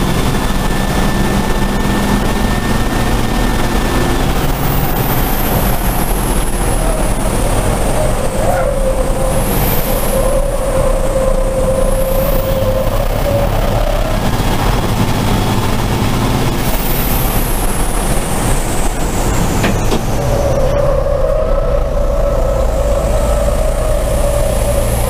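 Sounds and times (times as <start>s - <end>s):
steady whine: 0.0s - 25.0s
truck engine and road noise drone: 0.0s - 25.0s.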